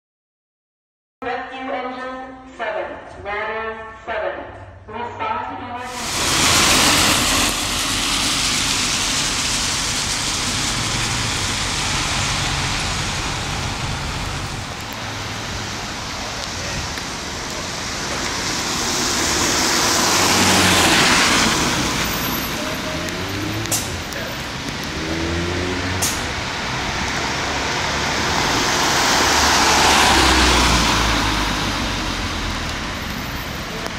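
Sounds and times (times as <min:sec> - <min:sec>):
traffic hissing on wet road: 0:05.8 - 0:33.9
low engine rumble: 0:05.9 - 0:24.9.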